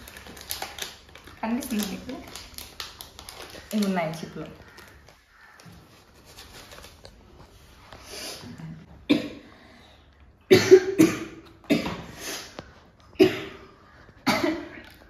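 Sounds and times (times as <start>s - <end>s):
woman coughing: 10.5s - 12.1s, 13.2s - 13.6s, 14.3s - 14.8s.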